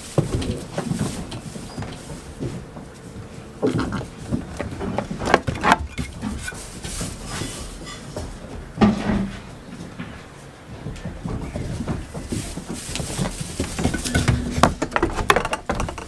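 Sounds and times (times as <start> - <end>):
goat hooves scuffling on straw: 0.0 - 14.8.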